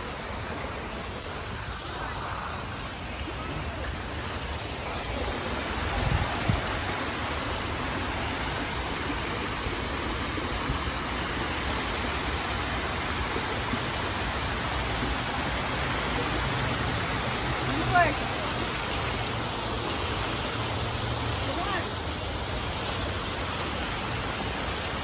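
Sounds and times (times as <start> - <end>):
water splashing over rocks: 0.0 - 25.0.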